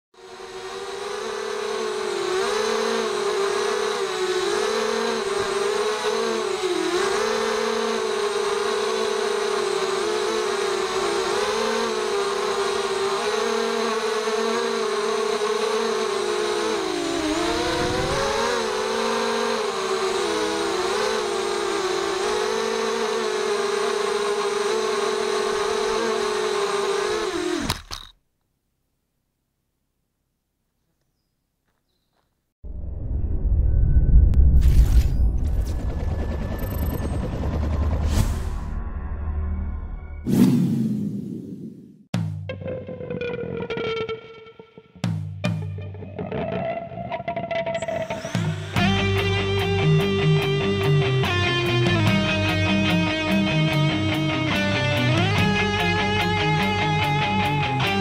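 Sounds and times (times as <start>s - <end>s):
quadcopter motors whining: 0.2s - 28.1s, 35.4s - 38.0s, 47.8s - 58.0s.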